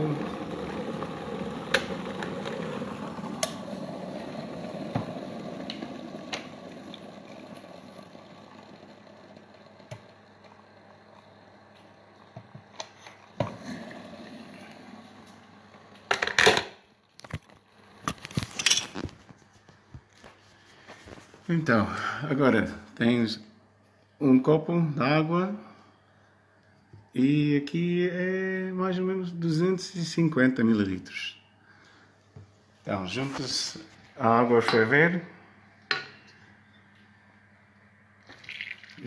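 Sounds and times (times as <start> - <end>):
kettle boiling hiss: 0.0 - 16.2.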